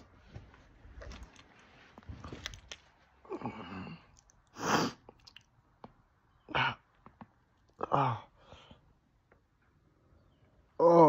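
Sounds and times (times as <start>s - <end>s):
mouth clicks: 3.9s - 7.9s.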